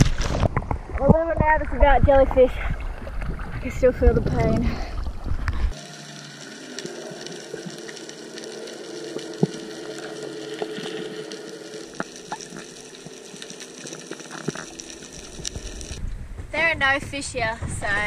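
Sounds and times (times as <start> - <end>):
faint hum: 4.7 - 16.4
small clicks and crackles: 5.5 - 16.0.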